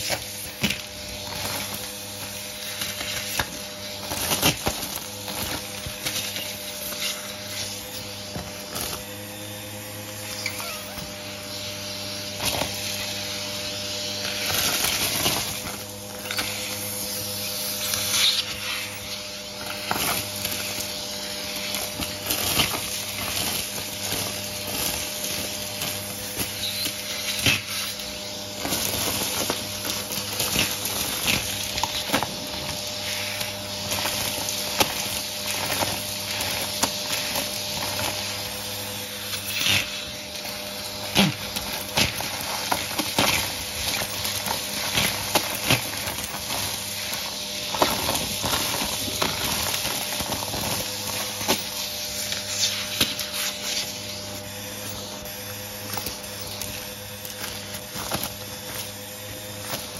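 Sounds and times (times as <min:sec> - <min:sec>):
vacuum cleaner running: 0:00.0 - 0:59.9
debris rattling in vacuum tube: 0:17.9 - 0:59.9.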